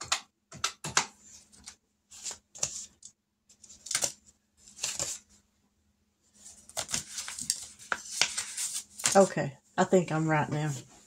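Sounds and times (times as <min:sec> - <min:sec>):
paper money rustling: 0:03.6 - 0:05.3, 0:06.4 - 0:09.3.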